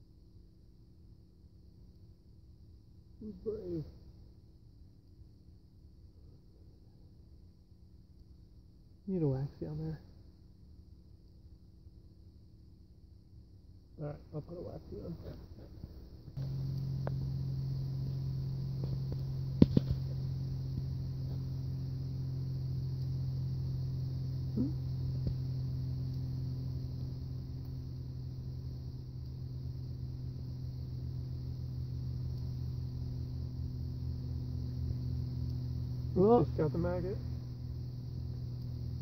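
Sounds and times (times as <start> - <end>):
low motor hum: 14.6 - 39.0.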